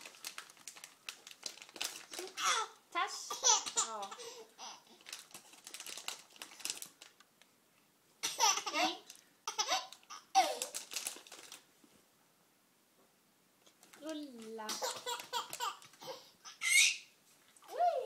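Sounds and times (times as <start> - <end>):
baby laughing: 2.2 - 4.9, 8.2 - 10.8, 14.7 - 17.1.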